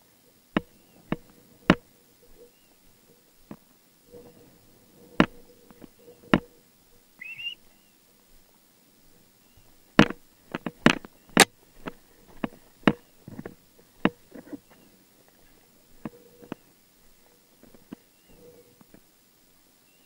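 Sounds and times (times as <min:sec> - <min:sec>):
sharp clicks and knocks: 0:00.5 - 0:04.5, 0:05.1 - 0:06.6, 0:10.0 - 0:14.6.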